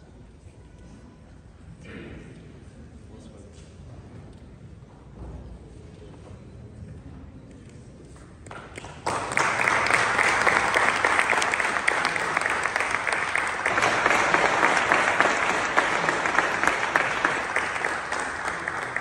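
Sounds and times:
crowd applauding: 8.5s - 19.0s.

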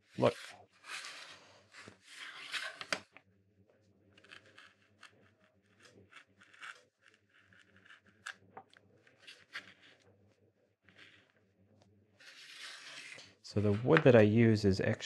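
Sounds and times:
carving knife scratching wood: 4.2s - 8.4s, 9.0s - 10.0s, 12.2s - 14.0s.

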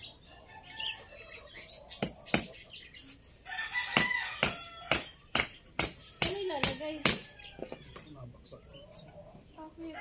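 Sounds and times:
rooster crowing: 3.4s - 5.2s.

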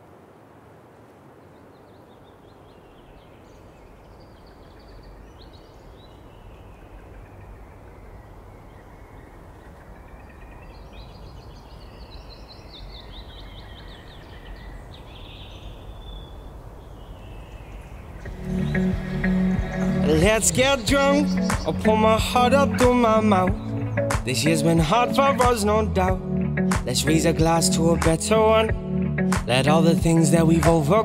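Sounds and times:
birds chirping: 1.2s - 31.0s
wind rushing: 15.8s - 24.3s.

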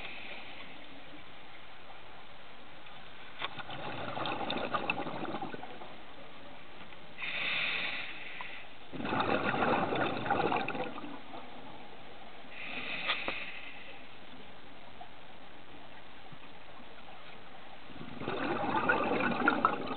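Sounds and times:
exhaled bubbles underwater: 3.5s - 5.9s, 8.9s - 11.8s, 17.9s - 19.9s
regulator inhalation hiss: 7.2s - 8.8s, 12.5s - 14.1s.

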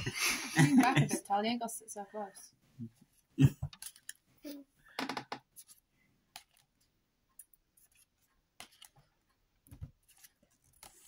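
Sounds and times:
cards scraping and clicking: 3.7s - 4.2s, 5.4s - 11.0s.

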